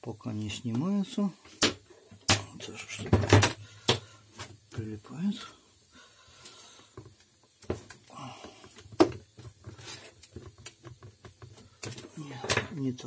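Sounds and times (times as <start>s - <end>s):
plastic cover clicks and knocks: 8.7s - 9.5s.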